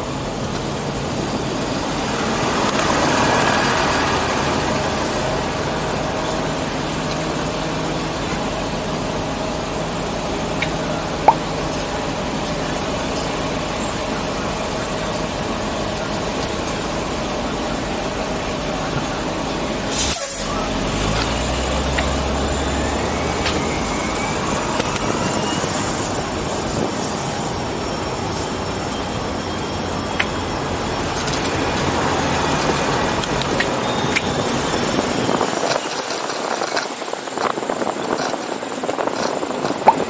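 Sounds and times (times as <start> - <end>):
bus engine drone: 0.0 - 40.0
road noise: 0.0 - 40.0
air brakes hiss: 19.9 - 20.7.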